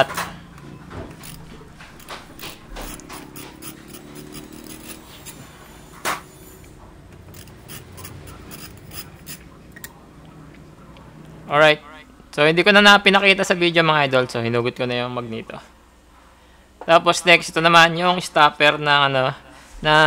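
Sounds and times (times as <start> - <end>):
metallic clicks and scraping: 0.0 - 10.0.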